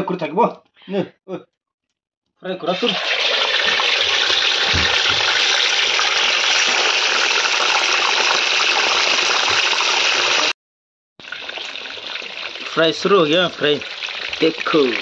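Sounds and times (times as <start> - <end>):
chicken frying in hot oil: 2.7 - 10.6, 11.2 - 15.0.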